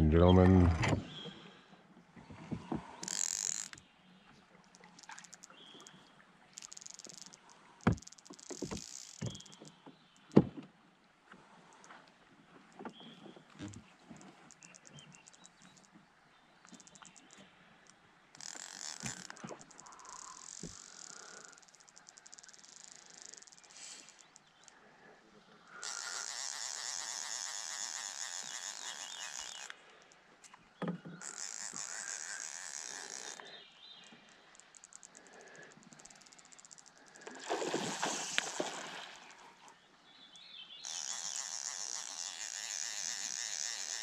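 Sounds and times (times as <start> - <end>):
fishing reel drag buzzing: 2.9 - 3.8, 4.6 - 9.8, 13.7 - 16.0, 16.6 - 24.8, 25.6 - 30.3, 31.1 - 39.6, 40.8 - 44.0.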